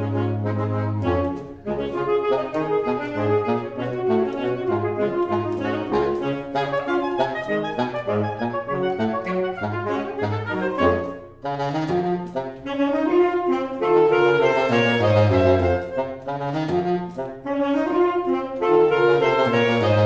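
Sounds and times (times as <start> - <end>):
saxophone quartet playing: 0.0 - 20.0.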